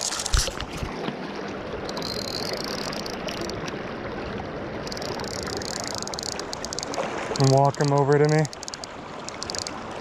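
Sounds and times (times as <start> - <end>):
river current rushing: 0.0 - 10.0
faint clicks: 4.8 - 9.8.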